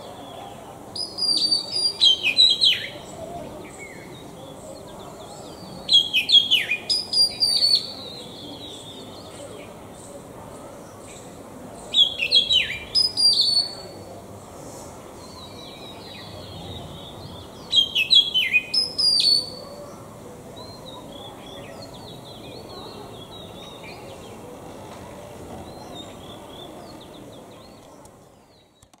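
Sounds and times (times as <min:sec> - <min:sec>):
bird singing whistled notes: 0:01.0 - 0:04.2, 0:05.9 - 0:09.3, 0:11.9 - 0:14.0, 0:15.2 - 0:19.6.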